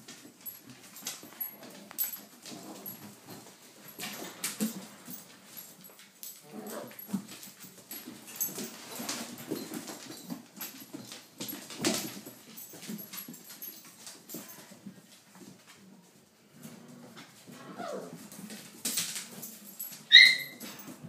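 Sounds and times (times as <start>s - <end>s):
puppies whimpering and yipping: 20.1s - 20.7s.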